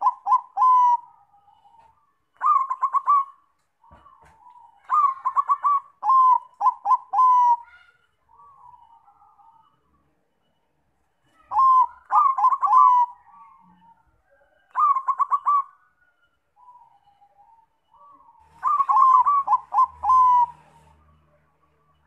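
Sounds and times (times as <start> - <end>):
dove staccato cooing: 0.0 - 9.4, 11.4 - 15.9, 16.6 - 21.1.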